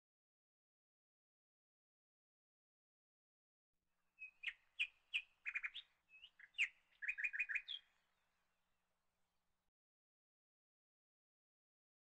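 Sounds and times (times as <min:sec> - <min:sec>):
small bird chirping: 0:04.2 - 0:07.9.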